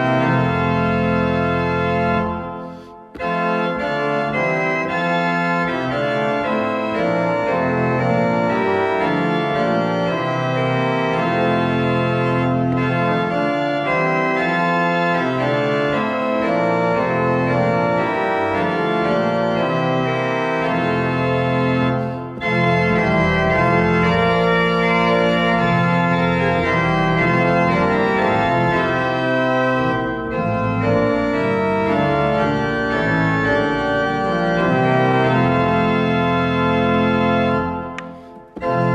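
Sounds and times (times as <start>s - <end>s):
organ chords: 0.0s - 38.9s.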